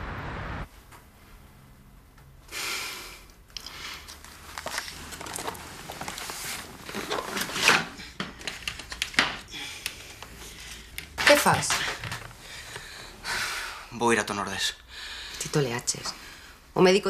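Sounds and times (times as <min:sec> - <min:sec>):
strained breaths: 0:02.5 - 0:04.2, 0:09.4 - 0:11.2, 0:11.8 - 0:13.9, 0:14.8 - 0:15.5.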